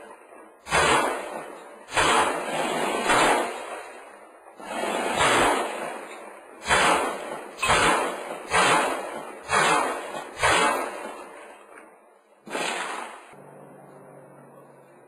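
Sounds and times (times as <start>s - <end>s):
rifle shots echoing indoors: 0.6s - 11.7s, 12.4s - 13.4s.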